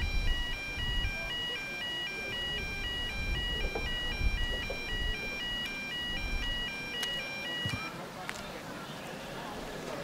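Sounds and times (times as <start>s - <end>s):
electronic two-tone sounder: 0.0s - 8.0s.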